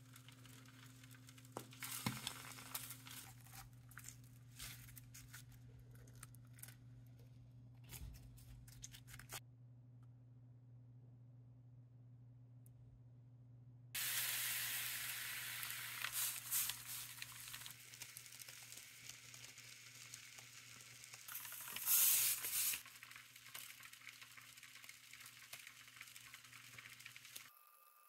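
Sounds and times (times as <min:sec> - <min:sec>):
liquid nitrogen boiling hiss: 0:00.0 - 0:03.4, 0:14.0 - 0:27.5
faint low hum: 0:03.0 - 0:13.9.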